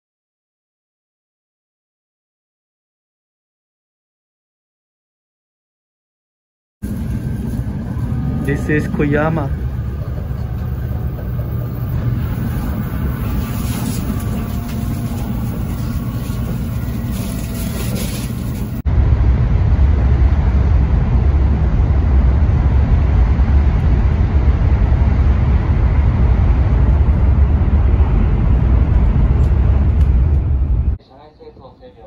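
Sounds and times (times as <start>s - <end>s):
train running rumble and hiss: 6.8s - 31.0s.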